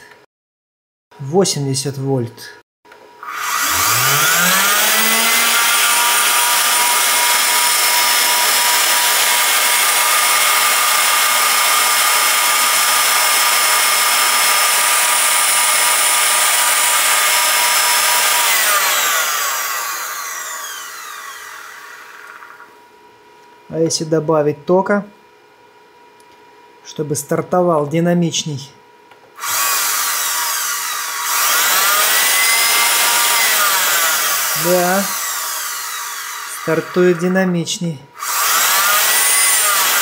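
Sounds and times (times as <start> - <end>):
vacuum motor whine: 3.2 - 22.9, 29.4 - 37.4.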